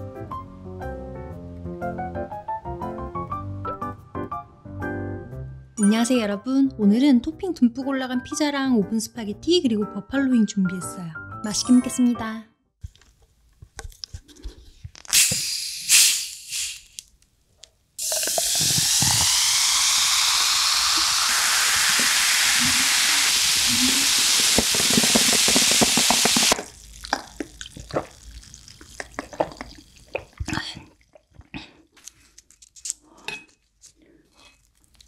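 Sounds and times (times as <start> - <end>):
gas hissing from bottle: 15.1 - 17.0, 18.0 - 26.7
plastic bottle twisted open: 18.0 - 19.8
cola fizzing pour: 18.0 - 30.8
bubbles crackling in glass: 18.0 - 31.6.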